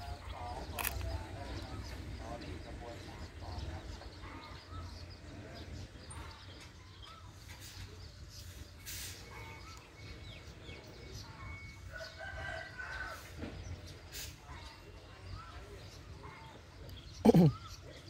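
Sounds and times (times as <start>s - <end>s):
birds calling: 0.0s - 18.0s.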